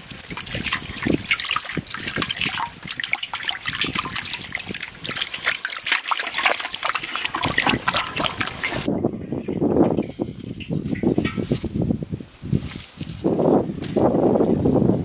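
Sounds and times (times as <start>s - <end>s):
water splashing: 0.0s - 11.5s.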